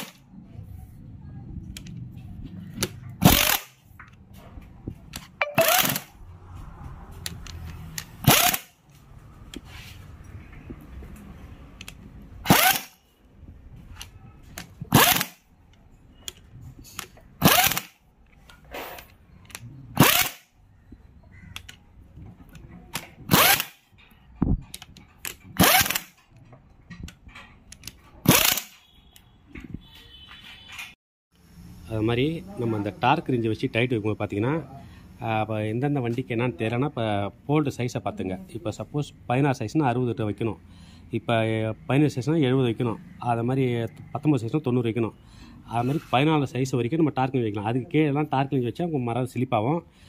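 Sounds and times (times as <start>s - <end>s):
power tool bursts: 3.2s - 3.8s, 5.6s - 6.1s, 8.2s - 8.7s, 12.4s - 13.0s, 14.9s - 15.4s, 17.4s - 18.0s, 20.0s - 20.5s, 23.3s - 23.8s, 25.6s - 26.2s, 28.2s - 28.8s.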